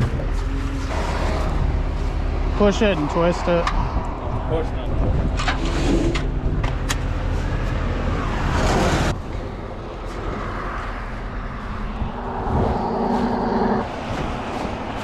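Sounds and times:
steady road noise: 0.0s - 15.0s
vehicle passing: 7.9s - 15.0s.

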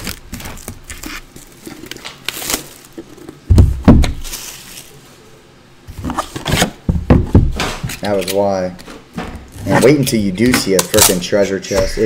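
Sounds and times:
shrink-wrap rustling: 0.0s - 3.4s, 4.2s - 5.1s.

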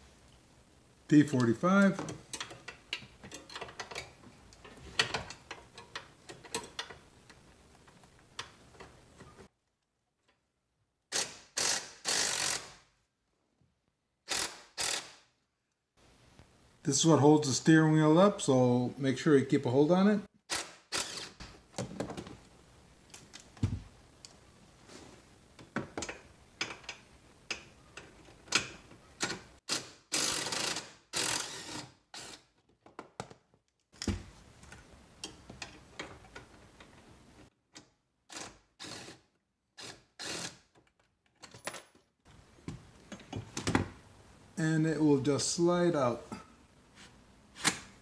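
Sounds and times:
hand ratchet clicking: 14.3s - 15.2s.

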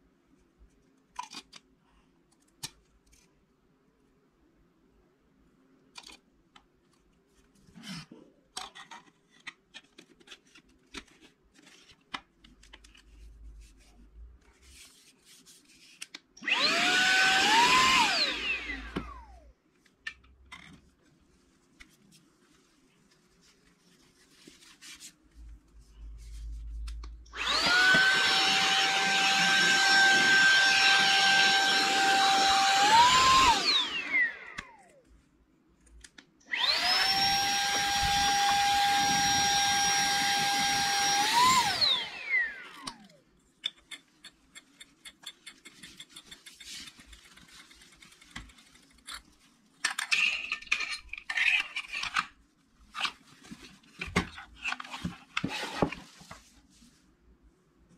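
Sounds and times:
clicks and rustles of handling: 5.8s - 16.4s, 42.8s - 56.9s
handheld vacuum cleaner whining: 16.4s - 19.4s, 27.3s - 34.8s, 36.5s - 43.1s.

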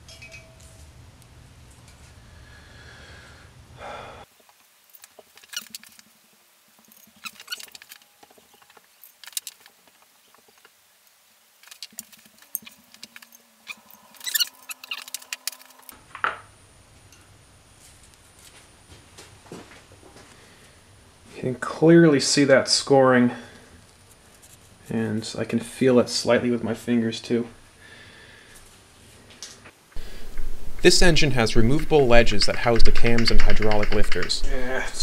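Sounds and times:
light metallic clicks and scrapes: 11.6s - 16.0s, 30.0s - 35.0s.

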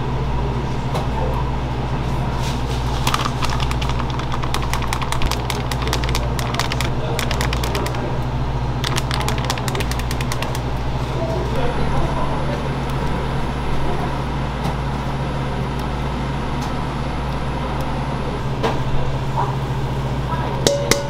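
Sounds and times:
low machine hum: 0.0s - 21.0s
utensils clicking and tapping: 3.0s - 8.1s, 8.8s - 10.8s.

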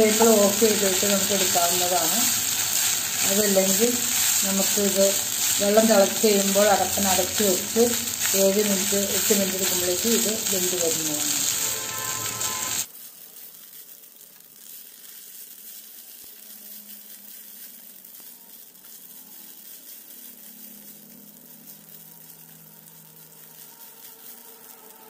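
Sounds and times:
wooden spatula stirring rice: 0.0s - 13.0s
rice sizzling in a pan: 0.0s - 25.0s.

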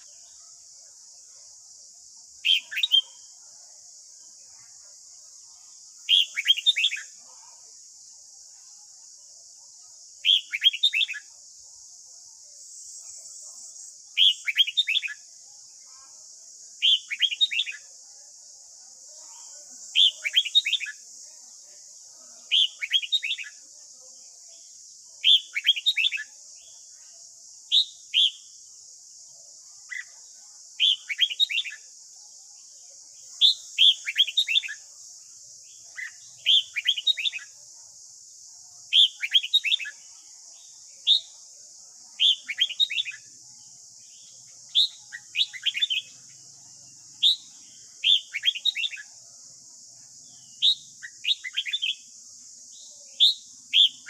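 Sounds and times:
bird singing whistled notes: 2.4s - 3.3s, 6.0s - 7.2s, 10.2s - 11.3s, 14.1s - 15.3s, 16.8s - 17.9s, 19.9s - 21.0s, 22.5s - 23.6s, 25.2s - 26.8s, 27.7s - 28.6s, 30.8s - 31.9s, 33.3s - 34.9s, 35.6s - 37.6s, 38.9s - 40.0s, 41.0s - 41.4s, 42.1s - 43.4s, 44.0s - 46.4s, 47.0s - 49.2s, 50.3s - 52.1s, 52.7s - 54.0s.

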